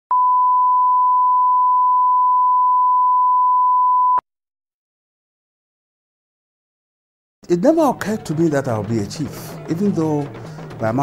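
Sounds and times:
steady sine test tone: 0.1 - 4.2.

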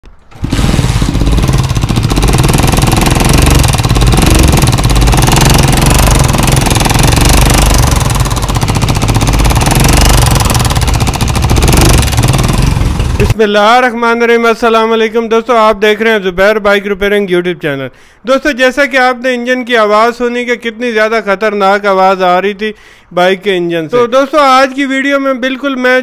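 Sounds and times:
motorcycle engine clattering: 0.1 - 13.4.

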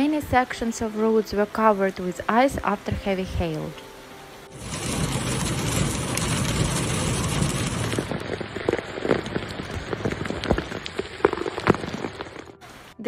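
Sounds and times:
hail pelting a car: 4.5 - 12.6.

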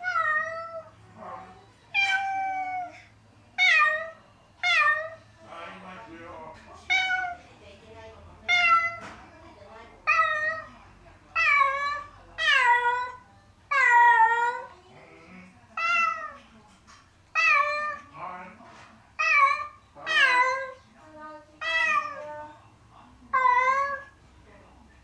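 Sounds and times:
cat meowing: 0.0 - 0.9, 1.9 - 3.0, 3.6 - 5.2, 6.9 - 7.4, 8.5 - 9.2, 10.0 - 10.7, 11.4 - 14.7, 15.8 - 16.4, 17.3 - 18.1, 19.2 - 20.8, 21.6 - 22.5, 23.3 - 24.2.

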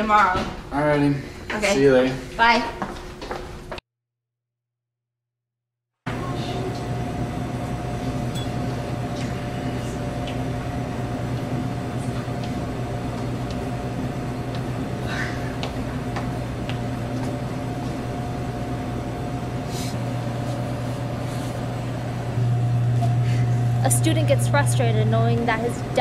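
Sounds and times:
electrical machine hum: 6.1 - 26.0.

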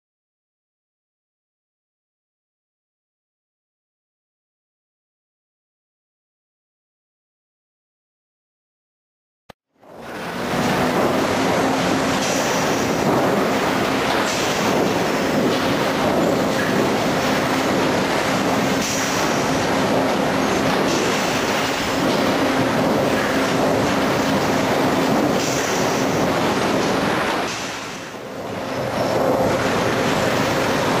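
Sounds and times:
conveyor machinery clatter: 9.8 - 31.0.

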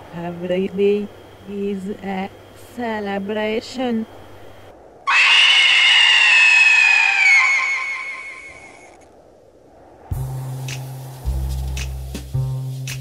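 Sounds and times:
sloth squealing scream: 5.1 - 9.0
music with deep bass: 10.1 - 13.0.

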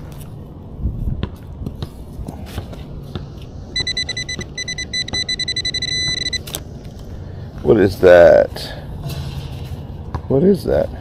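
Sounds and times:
rapidly pulsing electronic beep: 3.8 - 6.4.

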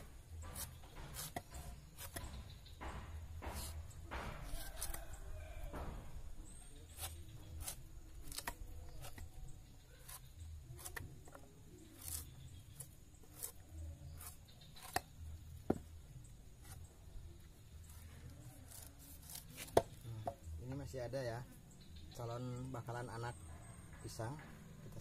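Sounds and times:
machete scraping roots: 0.0 - 6.0, 6.8 - 15.2, 17.8 - 20.1.

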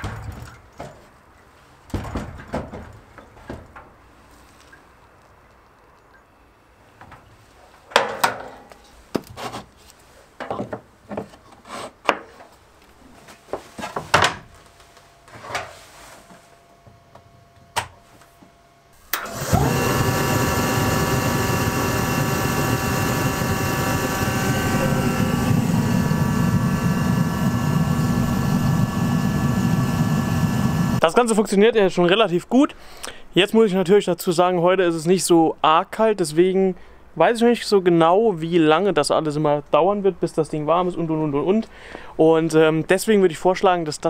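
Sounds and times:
multi-tone whine: 16.3 - 31.0
forced-air heater running: 19.0 - 31.1.

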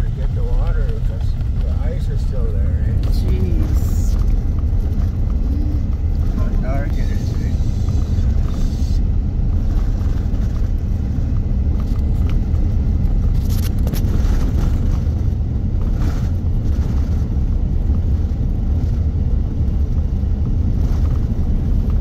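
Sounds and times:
tyres on gravel: 0.0 - 12.7
car engine running: 0.0 - 22.0.

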